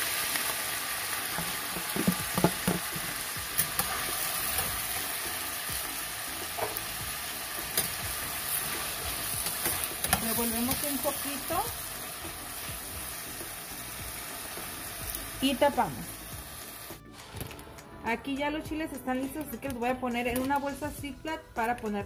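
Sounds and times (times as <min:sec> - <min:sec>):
potatoes sizzling in hot oil: 0:00.0 - 0:17.0.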